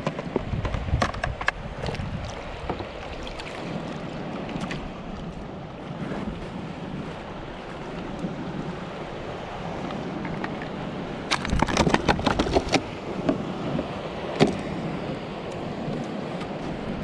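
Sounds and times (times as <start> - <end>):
wind noise on microphone: 0.0 - 17.0
lapping water: 1.8 - 5.4
sharp knocks and rattles: 11.3 - 12.8.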